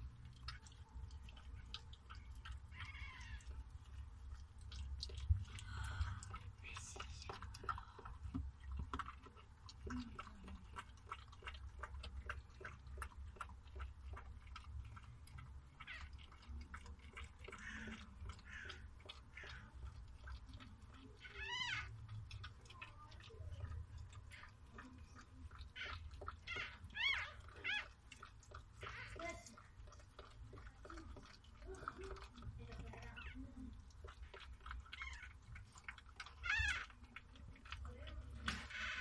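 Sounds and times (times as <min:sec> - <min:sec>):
dog licking wet clicks: 0:00.0 - 0:39.0
puppy squealing: 0:02.7 - 0:03.6, 0:15.8 - 0:16.2, 0:21.2 - 0:22.0, 0:25.7 - 0:28.0, 0:28.8 - 0:29.3, 0:34.9 - 0:35.4, 0:36.2 - 0:37.0.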